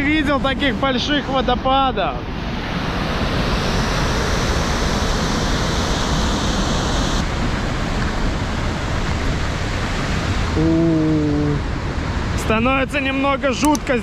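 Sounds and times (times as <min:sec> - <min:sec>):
waterfall roaring: 0:02.6 - 0:13.8.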